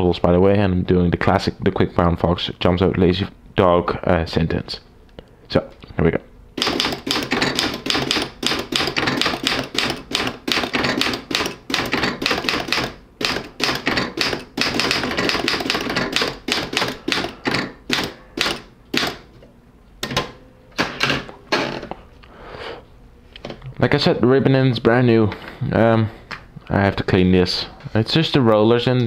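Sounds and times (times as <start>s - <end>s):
typewriter typebar strikes: 6.6s - 19.3s, 20.0s - 21.9s.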